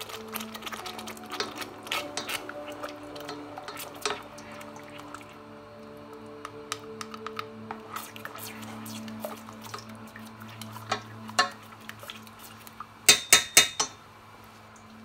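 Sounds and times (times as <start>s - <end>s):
spoon stirring thick sauce: 0.0s - 13.1s
faint background music: 0.0s - 15.0s.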